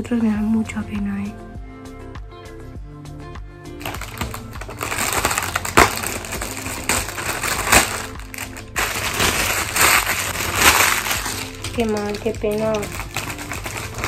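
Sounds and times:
background music: 0:00.0 - 0:14.0
foil balloon crinkling: 0:03.8 - 0:14.0.

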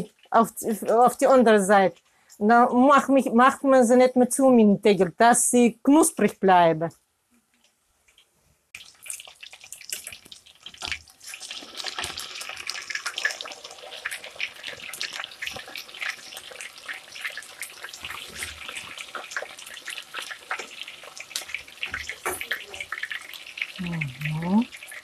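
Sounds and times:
patties sizzling in oil: 0:00.0 - 0:03.3, 0:08.1 - 0:25.0.

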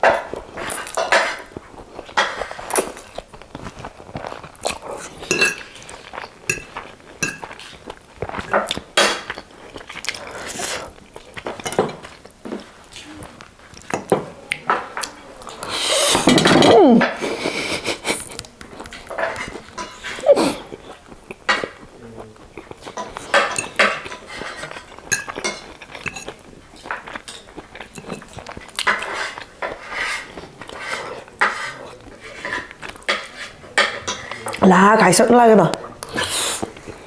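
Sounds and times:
chewing: 0:00.0 - 0:35.1, 0:35.7 - 0:37.0
fork scraping ceramic plate: 0:22.9 - 0:27.4, 0:28.0 - 0:34.5.

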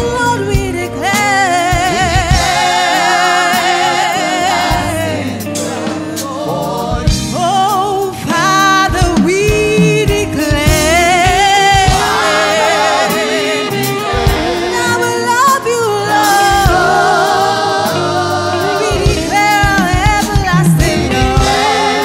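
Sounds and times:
gospel singers holding wavering notes: 0:00.0 - 0:22.0
live band with drums: 0:00.0 - 0:22.0.

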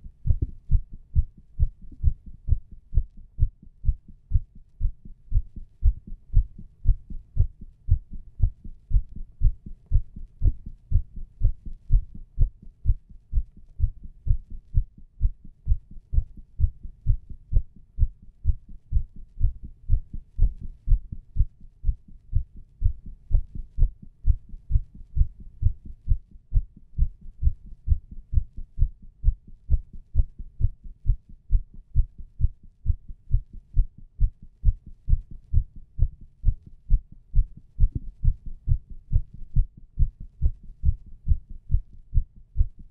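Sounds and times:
heartbeat through stethoscope: 0:00.0 - 0:42.9.

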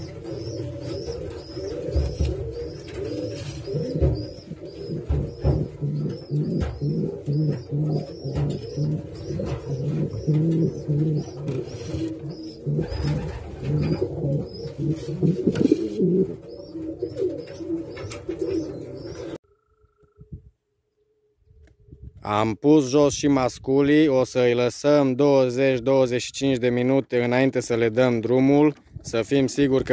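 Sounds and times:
pigeons cooing: 0:00.0 - 0:19.4.

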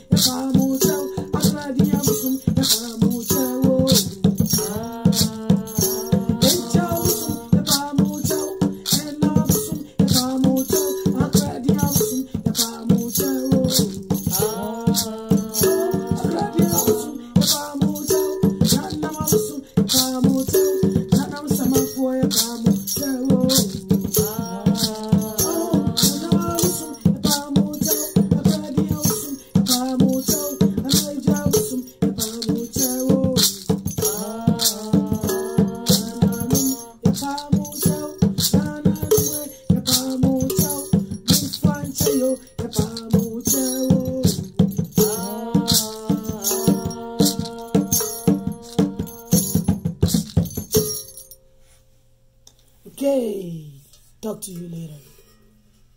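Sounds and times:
person singing long notes: 0:00.0 - 0:49.7
hand drum beating: 0:00.0 - 0:51.1
rattle shaking: 0:00.0 - 0:51.4.

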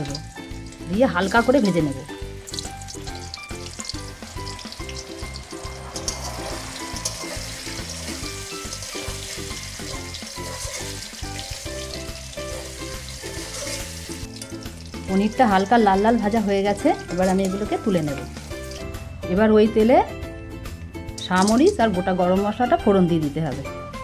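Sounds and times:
cheese sizzling in hot oil: 0:00.0 - 0:19.0.

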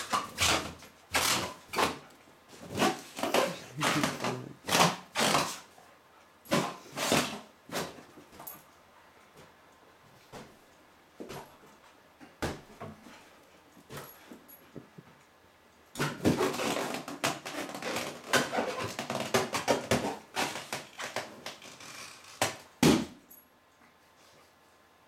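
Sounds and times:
rubber balloon rubbing and squeaking: 0:00.0 - 0:02.0, 0:02.6 - 0:05.7, 0:16.0 - 0:22.4
dog tapping balloon: 0:16.0 - 0:21.6.

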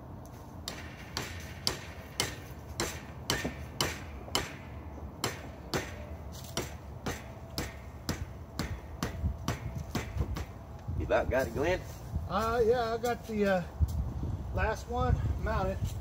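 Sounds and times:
hammer blows: 0:00.6 - 0:10.7.

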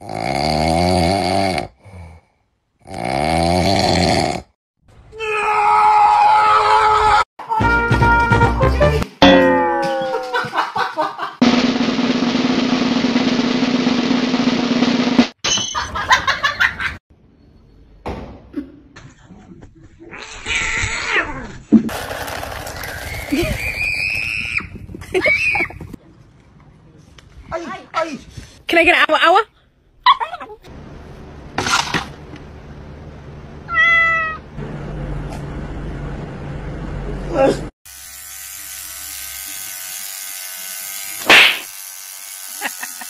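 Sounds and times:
snare drum roll: 0:11.4 - 0:15.4
cat meowing: 0:33.7 - 0:34.4.

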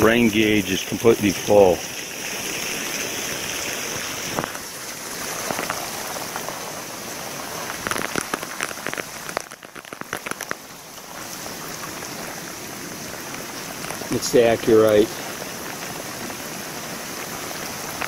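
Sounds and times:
heavy rain hissing: 0:00.0 - 0:18.0.

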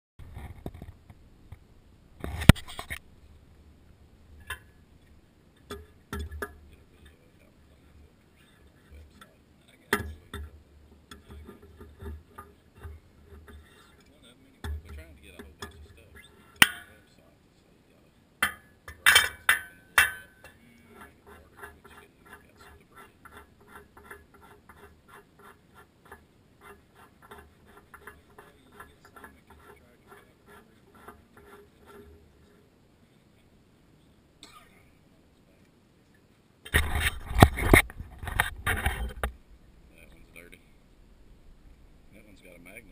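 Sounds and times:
wrench clinking against steel: 0:18.4 - 0:20.5.

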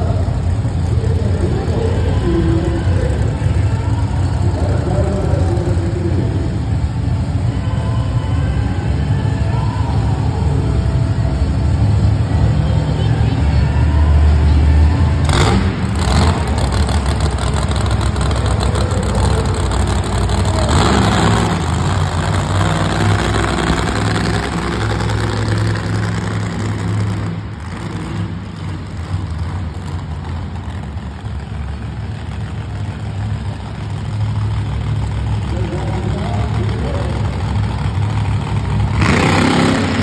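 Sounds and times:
monster truck engine rumbling: 0:00.0 - 0:40.0.

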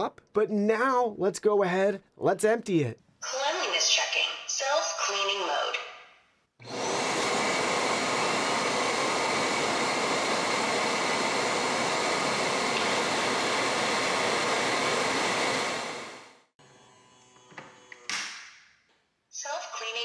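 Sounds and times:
vacuum dust base suction: 0:06.6 - 0:16.4.

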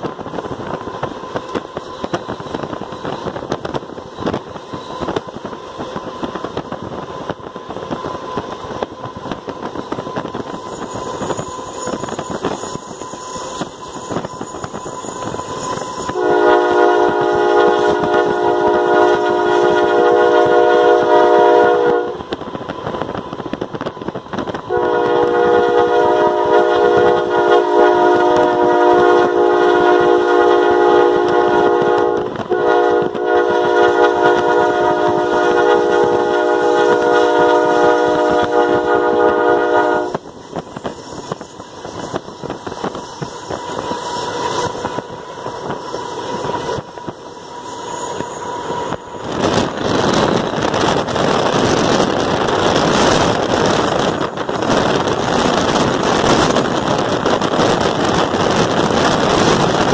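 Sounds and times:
locomotive air horn blasts: 0:14.4 - 0:22.3, 0:24.7 - 0:40.2.

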